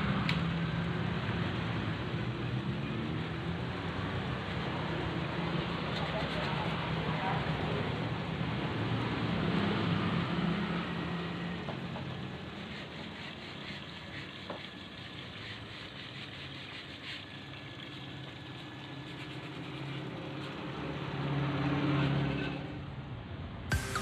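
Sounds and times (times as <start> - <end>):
electric water pump humming: 12.1 - 20.4, 23.7 - 24.0.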